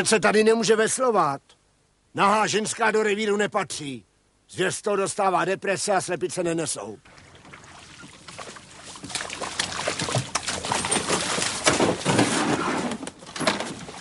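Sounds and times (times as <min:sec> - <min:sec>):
water splashing around a boat: 0:07.0 - 0:14.0.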